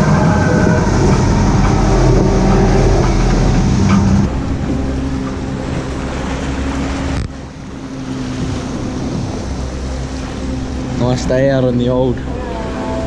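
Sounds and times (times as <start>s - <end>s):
outboard motor running: 0.0s - 13.0s
water rushing in wake: 0.0s - 13.0s
wind buffeting microphone: 0.0s - 13.0s.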